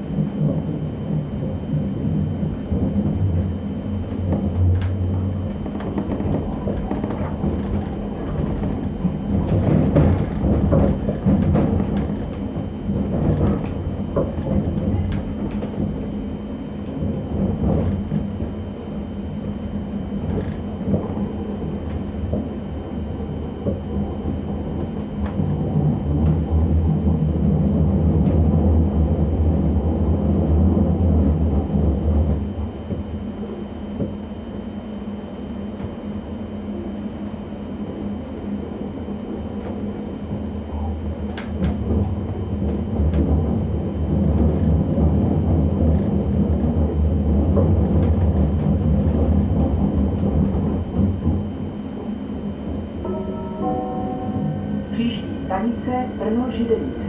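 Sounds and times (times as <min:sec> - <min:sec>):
train rumble: 0:00.0 - 0:57.0
faint high whine: 0:49.6 - 0:57.0.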